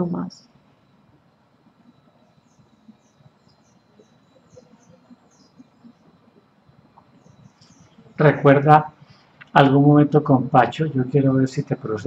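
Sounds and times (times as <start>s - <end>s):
thin high-pitched whine: 0.0s - 12.0s
small bird chirping: 1.7s - 8.3s.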